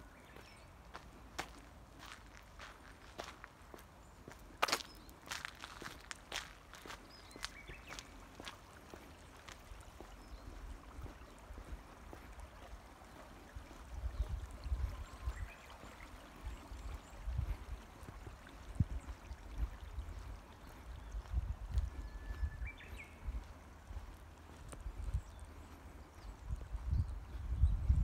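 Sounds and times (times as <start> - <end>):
stream trickling: 0.0 - 28.0
wind rumbling on microphone: 6.8 - 28.0.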